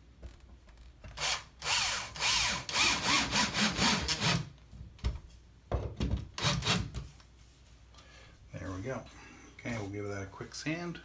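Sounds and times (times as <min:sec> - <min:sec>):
cordless drill driving screw: 0:01.2 - 0:04.5.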